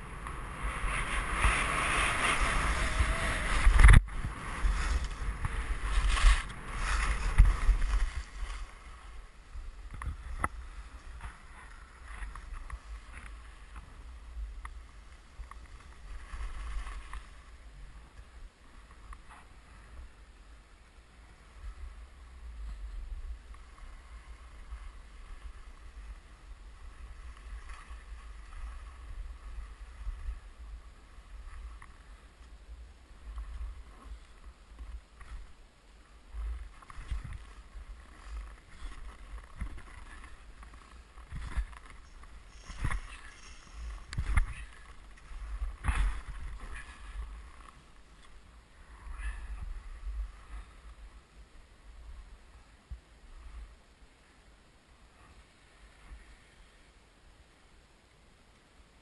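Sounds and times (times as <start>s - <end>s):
skis scraping over snow: 0.0s - 20.2s, 21.2s - 51.3s
wind buffeting microphone: 0.0s - 20.2s, 36.2s - 53.8s.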